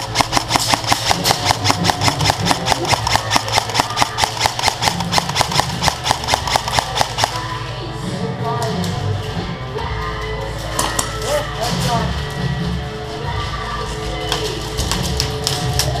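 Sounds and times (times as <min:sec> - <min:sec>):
fast sharp clicks: 0:00.0 - 0:07.4
background music: 0:00.0 - 0:16.0.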